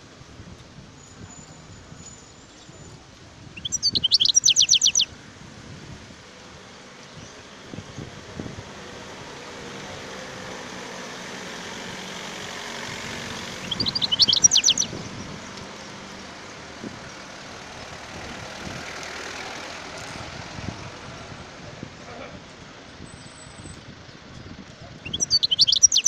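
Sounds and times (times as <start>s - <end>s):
bird twittering: 3.6s - 5.1s, 13.6s - 15.1s, 25.0s - 26.0s.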